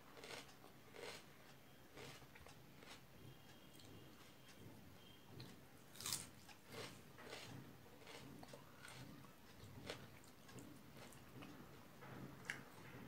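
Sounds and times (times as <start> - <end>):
person chewing: 0.2 - 1.3, 1.9 - 3.0, 5.9 - 11.6, 12.2 - 13.0.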